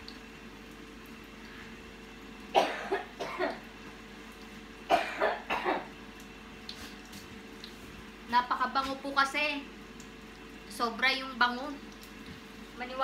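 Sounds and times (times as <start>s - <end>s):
woman coughing: 2.6s - 3.6s, 4.9s - 5.9s.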